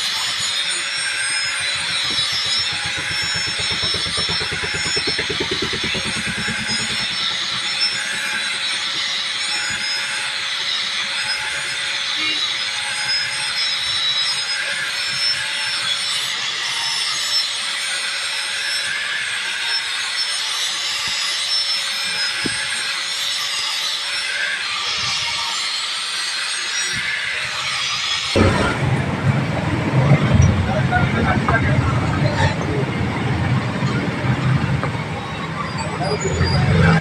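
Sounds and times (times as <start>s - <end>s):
angle grinder grinding steel: 0.0s - 13.3s.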